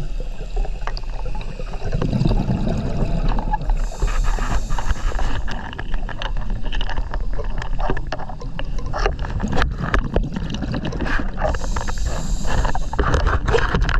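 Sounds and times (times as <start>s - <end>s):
bubbling exhaust: 0.0s - 13.5s
low rumble of water: 0.0s - 13.9s
regulator hissing inhale: 3.5s - 6.1s, 11.4s - 13.5s.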